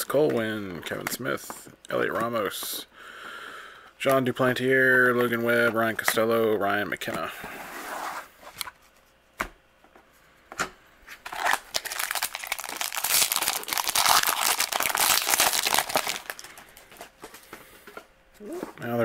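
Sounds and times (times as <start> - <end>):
foil wrapper tearing and crinkling: 11.2 - 16.9.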